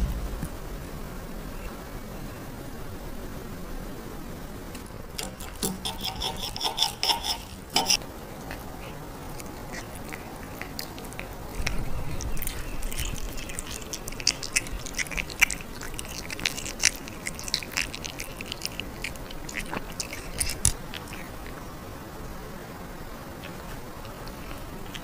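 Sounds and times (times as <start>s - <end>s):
cat chewing food: 4.7s - 21.8s, 23.3s - 25.0s.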